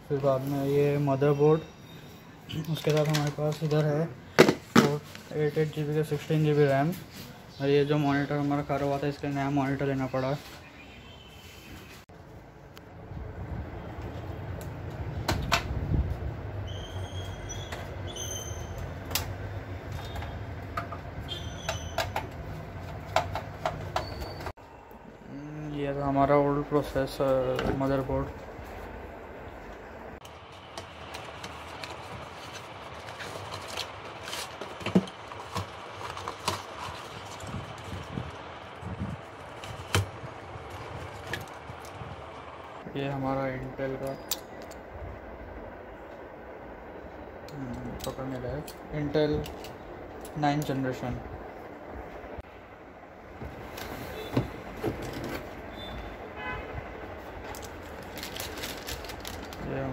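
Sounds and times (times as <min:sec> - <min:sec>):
steady background noise: 0:00.0 - 0:59.9
plastic bag crinkling: 0:57.5 - 0:59.9.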